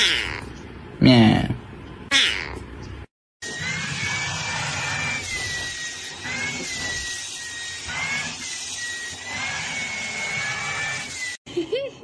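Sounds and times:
handheld vacuum cleaner whine: 3.4 - 11.4.

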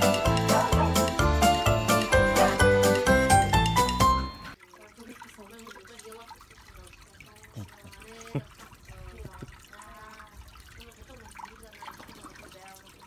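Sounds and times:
water plops: 3.6 - 13.0
water bubbling and gurgling: 4.4 - 13.0
water lapping and trickling: 4.4 - 13.0.

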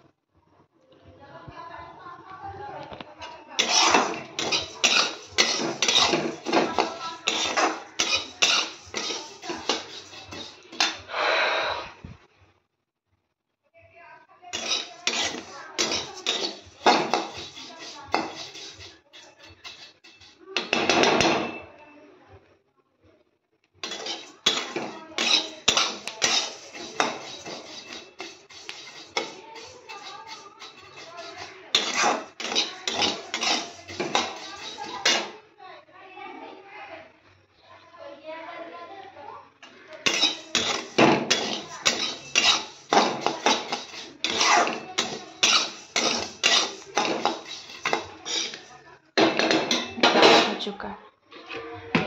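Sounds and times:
metal spatula scraping a pan: 3.6 - 11.2, 14.5 - 21.6, 23.8 - 35.4, 39.6 - 50.7.

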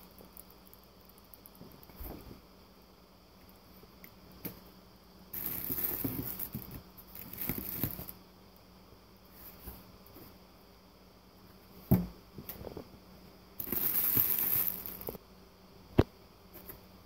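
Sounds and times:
foil and paper rustling: 5.4 - 8.1, 13.6 - 15.2.

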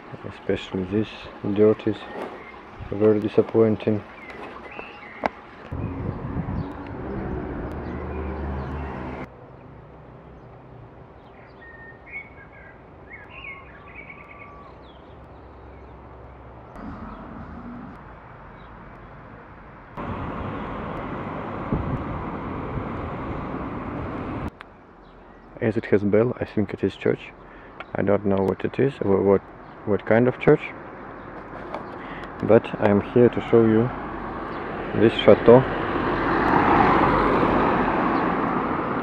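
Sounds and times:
small birds chirping: 0.4 - 9.3, 11.2 - 19.2, 24.6 - 33.8
low rumble: 16.8 - 18.6.

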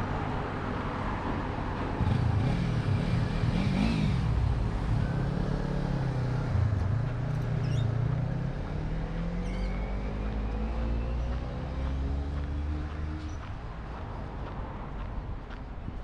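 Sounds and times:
vehicle engine accelerating: 2.0 - 13.5.

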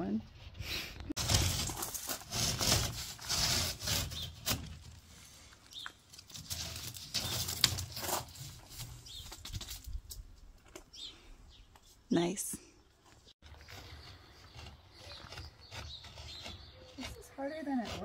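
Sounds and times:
hand tool scraping building material: 1.2 - 9.2, 13.4 - 18.0.

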